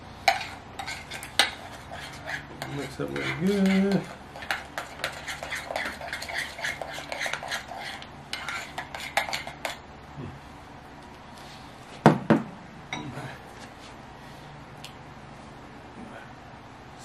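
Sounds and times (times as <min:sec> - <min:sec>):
metal spoon scraping ceramic bowl: 0:00.3 - 0:09.8.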